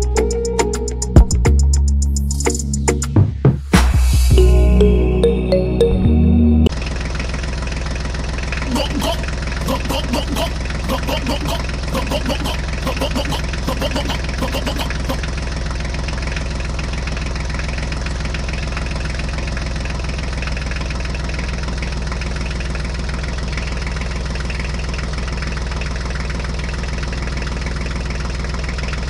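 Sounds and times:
tractor engine idling: 0:06.7 - 0:29.0.

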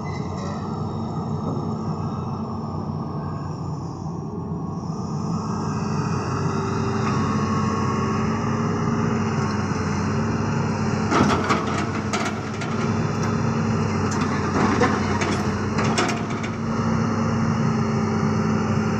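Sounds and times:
diesel engine running: 0:04.4 - 0:18.9.

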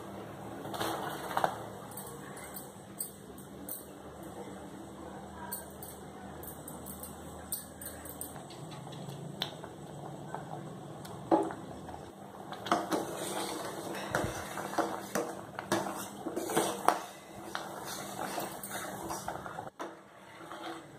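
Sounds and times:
pot simmering with hiss: 0:07.2 - 0:20.9.

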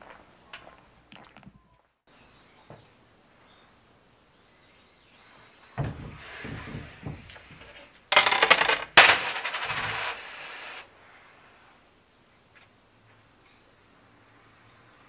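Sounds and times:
light knocks of coins: 0:07.3 - 0:10.4
coins clattering in wooden box: 0:07.3 - 0:10.8.

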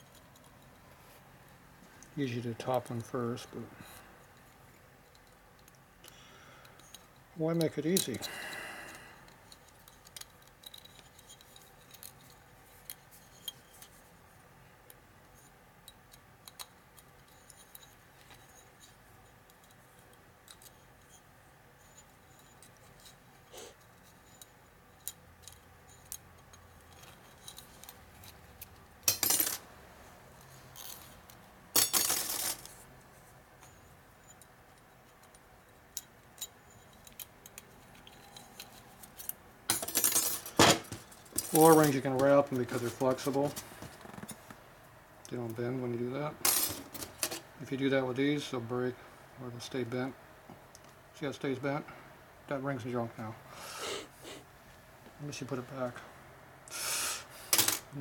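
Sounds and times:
metallic clicks and clinks: 0:09.3 - 0:13.9.

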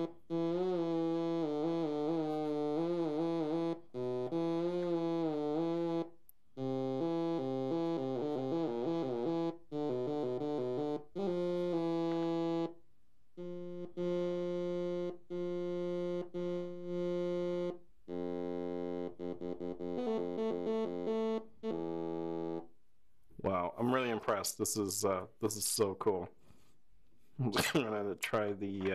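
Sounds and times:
synthesizer notes through speaker: 0:00.0 - 0:12.8, 0:13.4 - 0:22.6.

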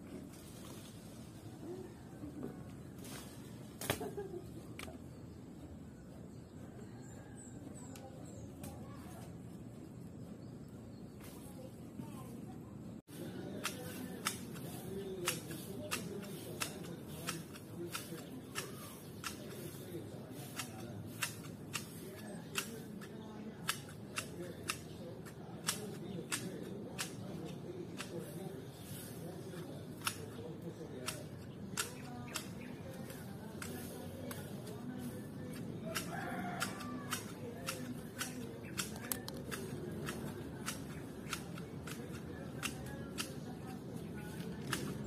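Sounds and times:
hand tool snipping plants: 0:13.2 - 0:45.0.

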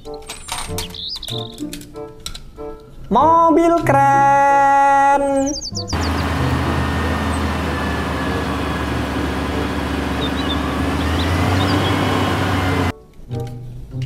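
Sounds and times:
diesel engine running: 0:05.9 - 0:12.9.

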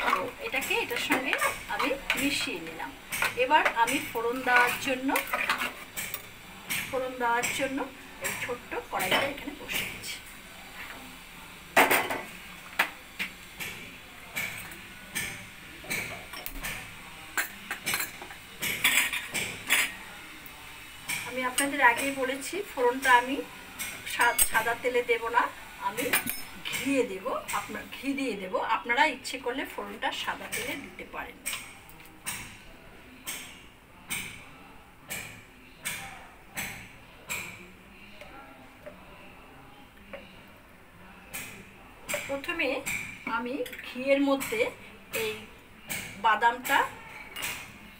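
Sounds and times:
utensils and dishes clinking: 0:00.0 - 0:10.2, 0:11.8 - 0:20.2, 0:21.0 - 0:24.9, 0:26.0 - 0:27.8, 0:41.3 - 0:47.9.

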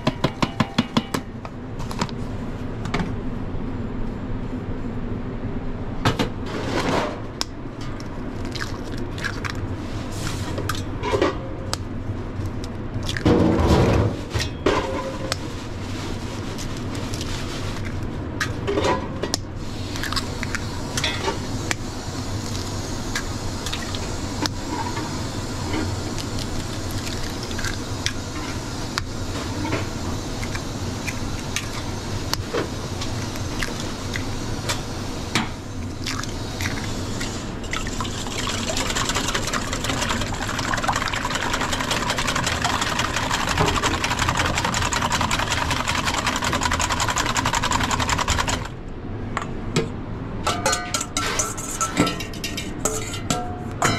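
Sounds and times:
low background hum: 0:00.0 - 0:53.9
whisk beating eggs: 0:25.6 - 0:29.2, 0:36.1 - 0:48.7.

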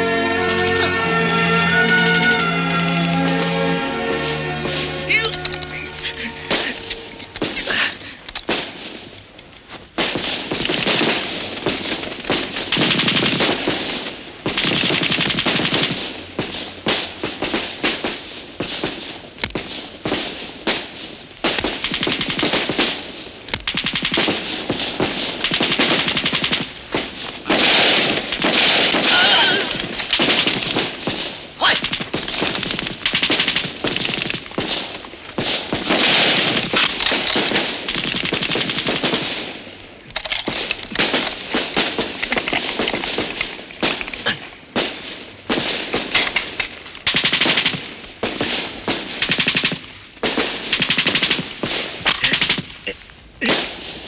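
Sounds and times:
machine-gun and rifle fire: 0:10.0 - 0:52.8.

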